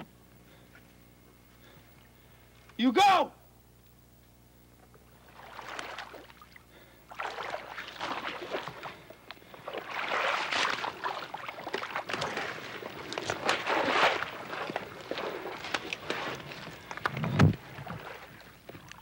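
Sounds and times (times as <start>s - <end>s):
dry brush rustling: 11.9s - 18.4s
twigs crackling and snapping: 12.0s - 17.6s.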